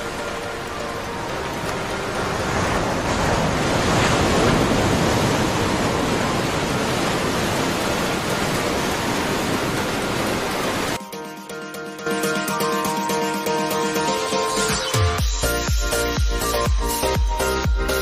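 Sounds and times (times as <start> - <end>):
waves washing on sandy shore: 0.0 - 11.0.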